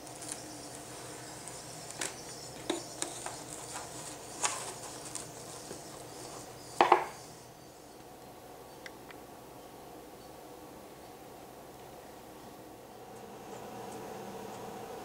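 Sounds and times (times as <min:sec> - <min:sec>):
plastic wrap crackle: 0:00.0 - 0:06.4
cling wrap crinkling: 0:00.0 - 0:06.6.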